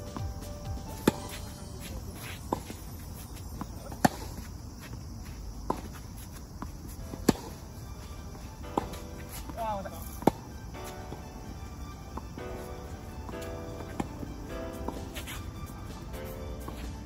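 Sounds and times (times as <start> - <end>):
tennis ball bouncing: 0.0 - 17.0
tennis racket hitting ball: 0.1 - 2.8, 3.6 - 4.5, 6.6 - 7.7, 8.3 - 11.5, 12.2 - 16.0.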